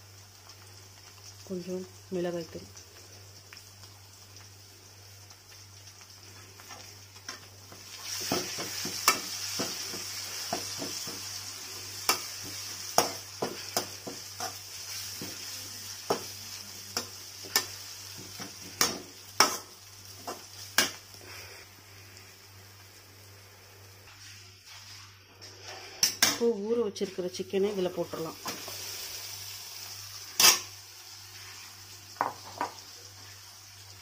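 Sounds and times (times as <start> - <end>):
onions frying in oil sizzling: 0.0 - 34.0
metal spoon scraping a pan: 30.3 - 30.7.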